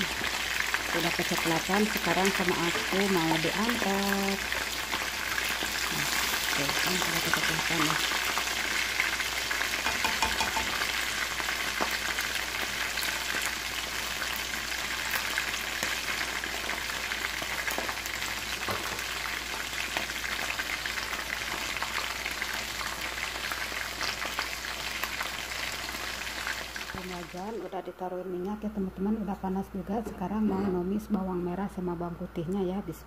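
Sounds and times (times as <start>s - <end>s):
chicken frying in hot oil: 0.0s - 27.7s.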